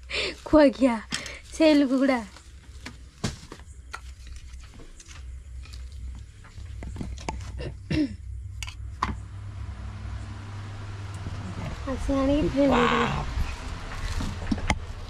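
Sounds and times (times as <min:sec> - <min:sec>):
handling of dumpling wrappers: 0:00.1 - 0:07.6
steady low hum: 0:02.3 - 0:15.0.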